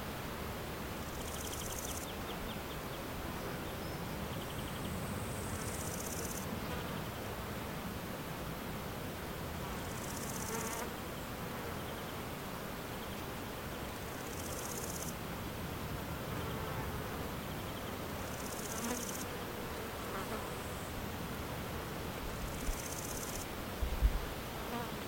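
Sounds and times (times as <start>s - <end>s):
steady background hiss: 0.0s - 25.0s
insect high-pitched buzzing: 1.0s - 2.1s, 5.4s - 6.4s, 9.9s - 10.9s, 14.1s - 15.2s, 18.2s - 19.3s, 22.5s - 23.5s.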